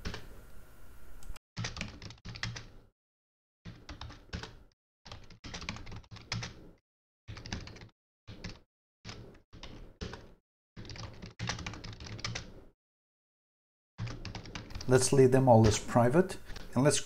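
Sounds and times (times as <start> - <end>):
computer keyboard typing: 1.6 - 2.7, 3.7 - 12.6, 14.0 - 15.2.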